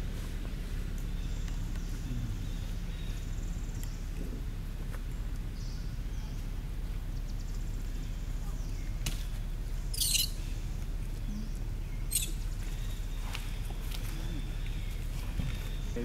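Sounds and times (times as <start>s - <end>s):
dry leaves rustling: 0.0s - 16.0s
steady low rumble: 0.0s - 16.0s.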